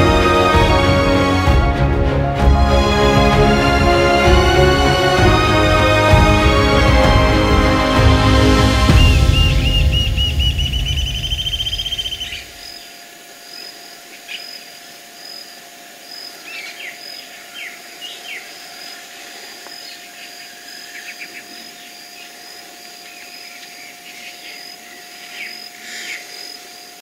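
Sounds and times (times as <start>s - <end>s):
background music: 0.0s - 12.6s
birds chirping: 7.7s - 26.8s
faint insect drone: 10.6s - 27.0s.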